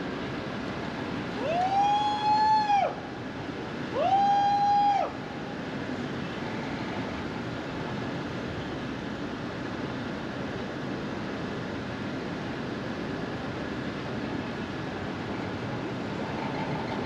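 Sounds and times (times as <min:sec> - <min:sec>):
car road noise: 0:14.0 - 0:17.0.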